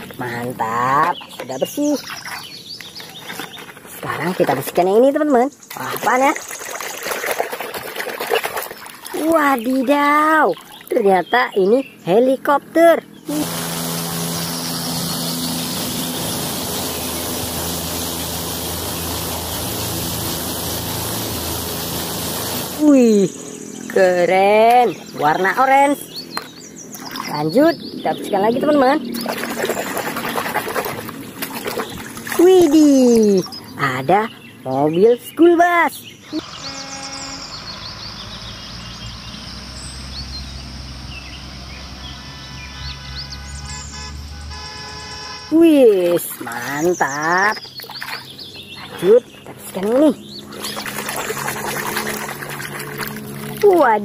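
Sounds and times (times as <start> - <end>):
birds chirping: 0.0 - 21.8, 22.8 - 54.0
bus engines rumbling: 35.9 - 54.0.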